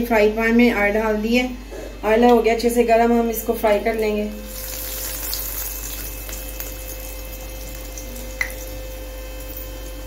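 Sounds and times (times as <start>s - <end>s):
oil sizzling in a pan: 4.3s - 10.0s.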